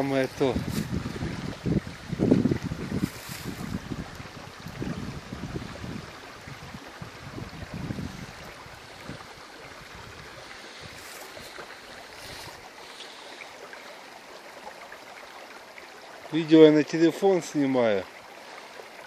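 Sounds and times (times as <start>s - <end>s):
wind buffeting microphone: 0.0s - 12.7s
wind hiss: 0.0s - 14.3s
stream water flowing: 0.0s - 19.0s.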